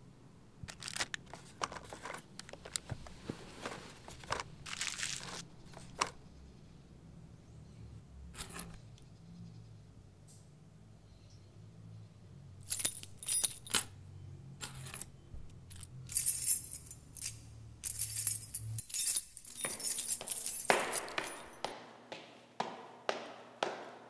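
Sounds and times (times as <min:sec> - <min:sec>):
keys jangling: 0:12.6 - 0:13.9, 0:15.7 - 0:21.7.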